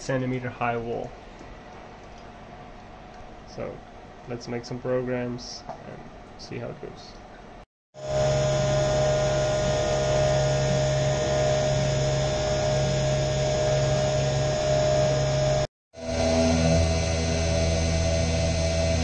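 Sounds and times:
milling machine cutting metal: 0:08.0 - 0:19.0.

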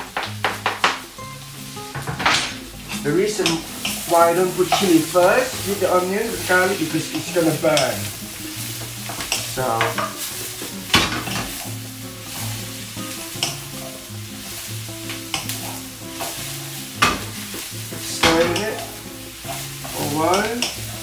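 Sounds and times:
background music: 0:00.0 - 0:21.0
food sizzling in a frying pan: 0:00.0 - 0:21.0
spatula knocking and scraping pan: 0:15.1 - 0:17.6.

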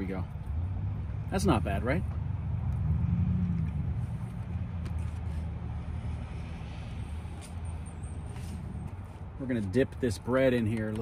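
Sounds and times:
motor vehicle rumble: 0:00.0 - 0:11.0.

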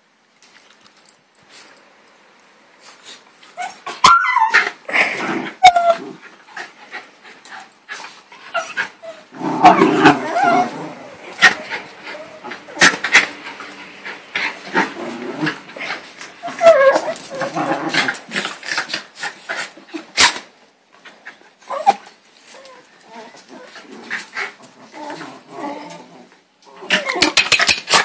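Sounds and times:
dogs yipping and whining: 0:03.6 - 0:06.2, 0:08.4 - 0:14.6, 0:15.4 - 0:17.8, 0:21.6 - 0:23.8.

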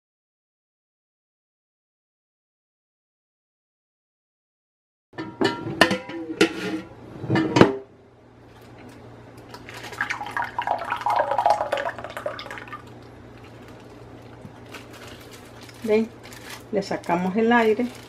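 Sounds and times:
plastic bag rustling: 0:08.5 - 0:10.5, 0:12.8 - 0:18.0
liquid pouring into plastic bag: 0:09.5 - 0:18.0.

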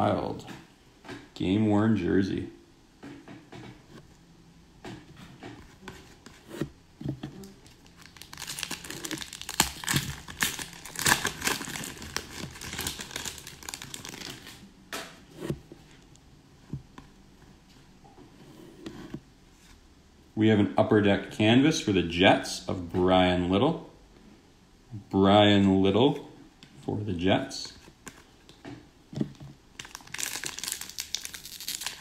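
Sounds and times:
foil wrapper tearing and crinkling: 0:07.4 - 0:14.6, 0:29.8 - 0:32.0.

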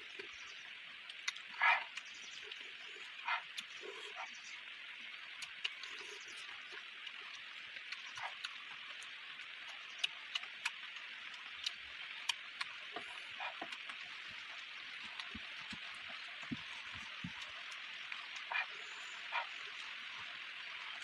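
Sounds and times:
wet clicks and smacks: 0:01.0 - 0:02.6, 0:05.3 - 0:06.2, 0:07.0 - 0:14.1
person chewing food: 0:01.0 - 0:04.4, 0:05.2 - 0:19.9.

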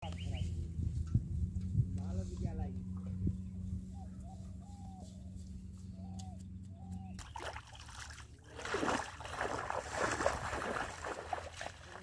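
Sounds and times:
footsteps wading through water: 0:07.2 - 0:12.0.

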